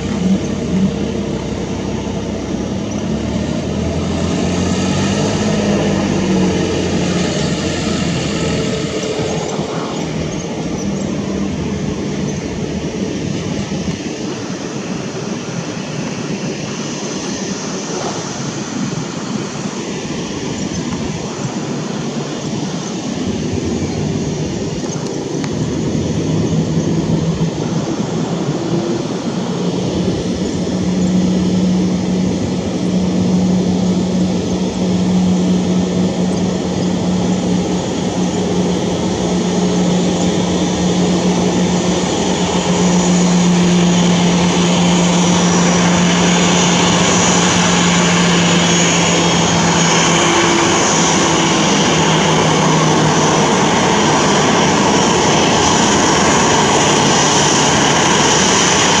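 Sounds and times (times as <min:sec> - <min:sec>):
jet engines idling: 0:00.0 - 0:59.0.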